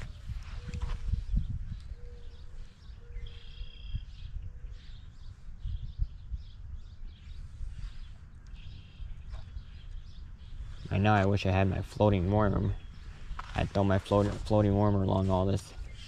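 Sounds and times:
birds chirping: 0:00.0 - 0:16.0
low microphone rumble: 0:00.0 - 0:16.0
high bird call: 0:01.9 - 0:04.2.

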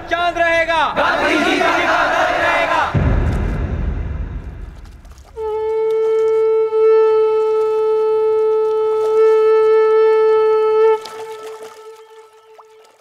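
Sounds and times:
conch shell blown: 0:05.2 - 0:13.0.

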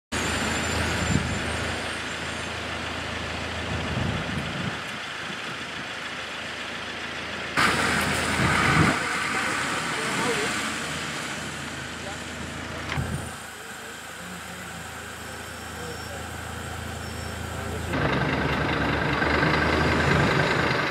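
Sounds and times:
vehicle engine humming: 0:00.1 - 0:20.9
loud hissy noise: 0:07.6 - 0:18.0.

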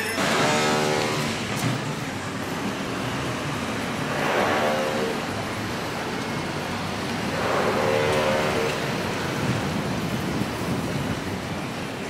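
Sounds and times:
cars passing on street: 0:00.0 - 0:12.0.

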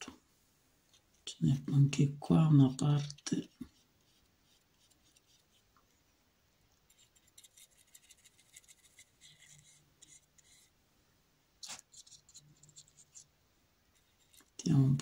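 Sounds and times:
paintbrush scratching on canvas: 0:02.7 - 0:05.7, 0:06.8 - 0:10.8, 0:11.6 - 0:13.3, 0:13.9 - 0:14.6.

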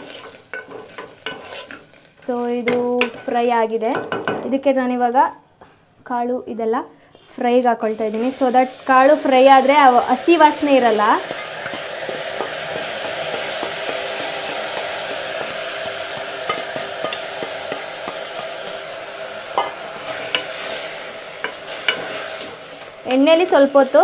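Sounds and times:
spatula scraping steel bowl: 0:00.0 - 0:01.9, 0:21.4 - 0:22.5
beans sizzling in hot oil: 0:00.0 - 0:05.3, 0:07.4 - 0:24.0.

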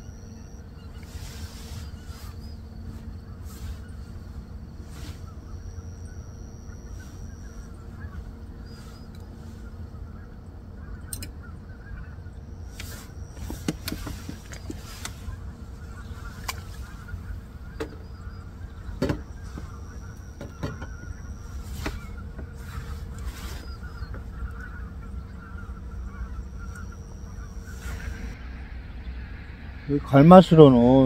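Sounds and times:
geese honking: 0:00.0 - 0:31.0
sharp clicks and knocks: 0:12.8 - 0:15.2, 0:19.0 - 0:19.7.

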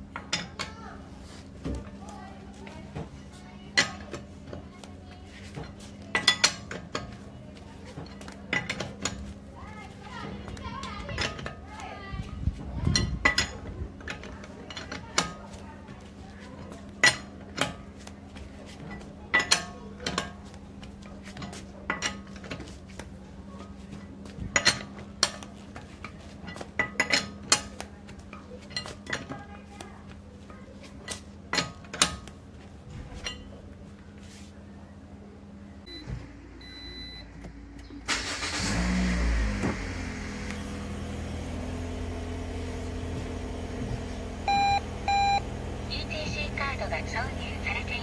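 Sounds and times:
lug wrench clinking on wheel nuts: 0:12.9 - 0:15.4.

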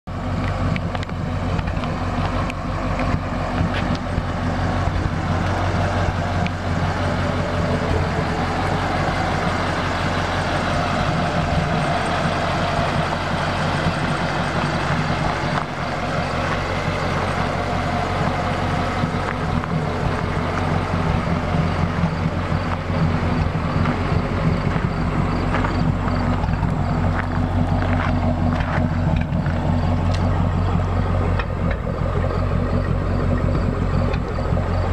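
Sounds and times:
truck engine idling: 0:00.0 - 0:34.9.

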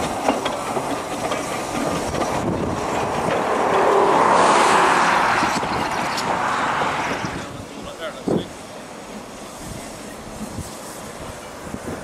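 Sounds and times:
wheels clicking over rail joints: 0:00.0 - 0:04.3, 0:05.4 - 0:08.5
steam locomotive passing: 0:00.0 - 0:12.0
steam hiss: 0:05.4 - 0:12.0.

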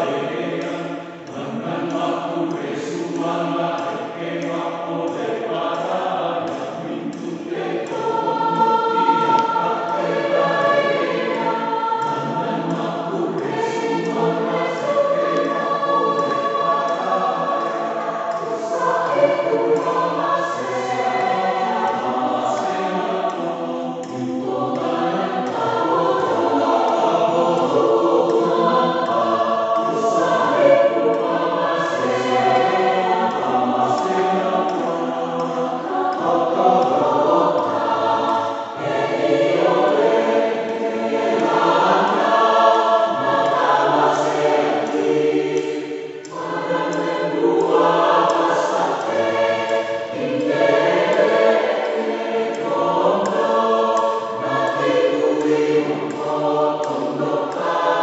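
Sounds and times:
mixed choir singing: 0:00.0 - 0:58.0.

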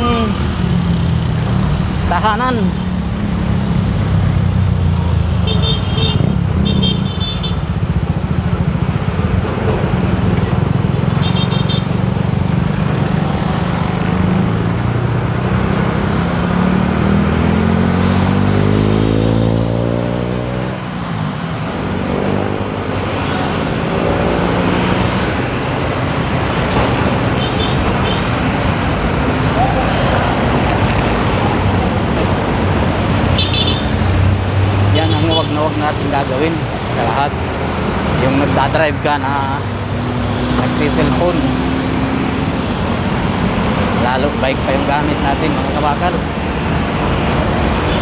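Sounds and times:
traffic engines droning: 0:00.0 - 0:48.0
vehicle engine accelerating: 0:12.8 - 0:27.3.

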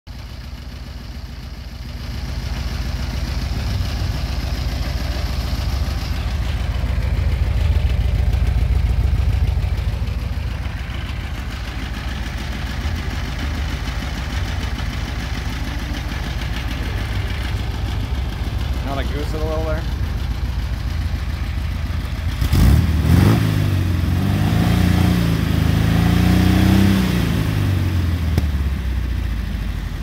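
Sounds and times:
car engine idling: 0:00.1 - 0:30.0.

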